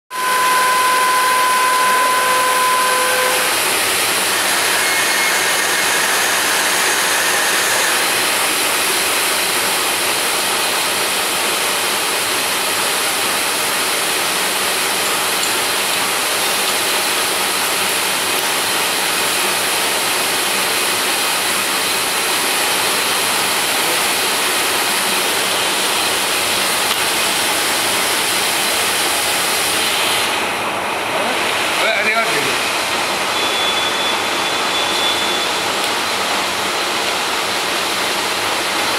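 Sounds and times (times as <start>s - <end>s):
drill machine running: 0.1s - 30.8s
high mechanical whine: 0.1s - 38.9s.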